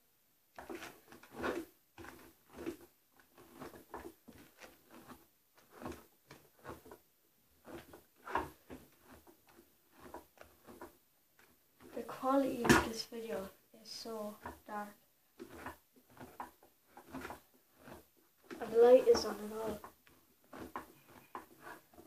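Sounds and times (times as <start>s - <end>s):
hairbrush brushing hair: 13.9s - 19.9s.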